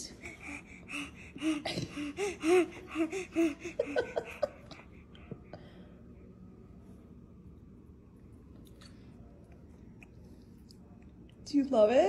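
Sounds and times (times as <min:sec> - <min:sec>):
baby gasping excitedly: 0:00.1 - 0:04.3.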